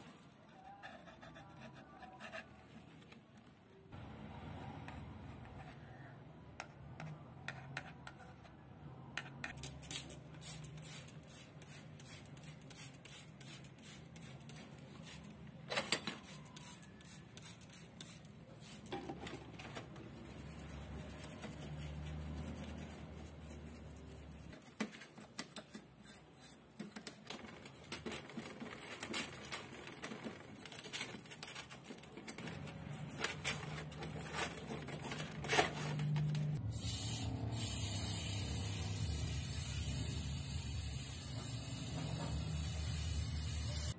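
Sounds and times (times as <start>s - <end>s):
brushes scrubbing parts: 20.1s - 27.1s.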